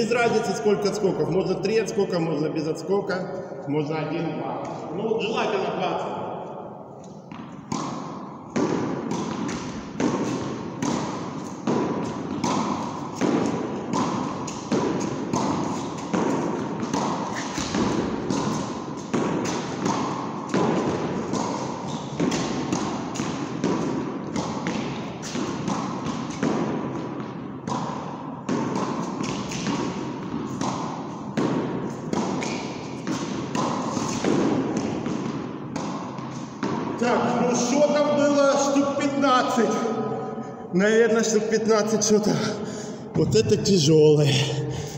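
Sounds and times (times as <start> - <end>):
racket striking ball: 6.4 - 38.2
ball bouncing on concrete floor: 6.5 - 37.2
ball hitting concrete wall: 7.2 - 37.4.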